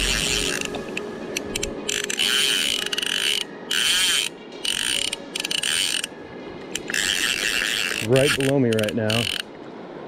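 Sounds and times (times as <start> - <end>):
fishing reel clicks: 0.0 - 0.8, 1.5 - 6.1, 6.7 - 9.5
fishing reel drag buzzing: 0.0 - 0.8, 1.9 - 6.1, 6.7 - 9.5.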